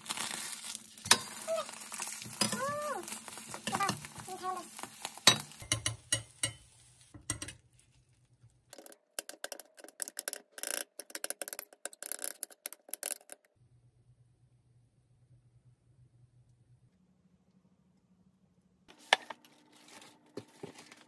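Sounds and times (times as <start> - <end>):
fork scraping frying pan: 1.0 - 7.6
fork tapping ceramic plate: 5.3 - 6.6.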